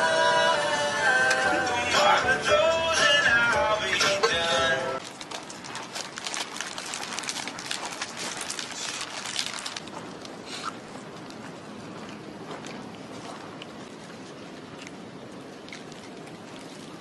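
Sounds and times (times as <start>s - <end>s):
person chewing bread: 5.0s - 17.0s.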